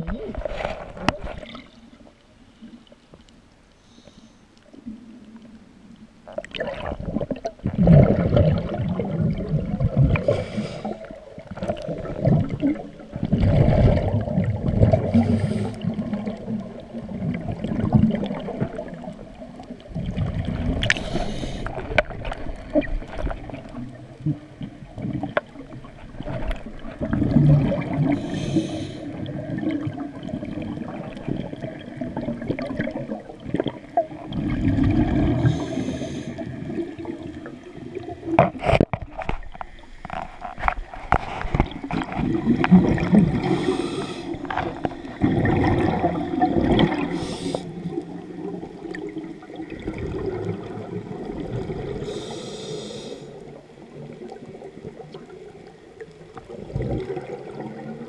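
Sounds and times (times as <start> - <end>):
regulator hissing on inhale: 3.8 - 4.5, 10.2 - 11.2, 15.1 - 15.8, 21.0 - 21.8, 28.1 - 29.2, 35.4 - 36.6, 43.4 - 44.5, 47.1 - 47.8, 52.0 - 53.5
exhaled bubbles gurgling: 4.8 - 58.0.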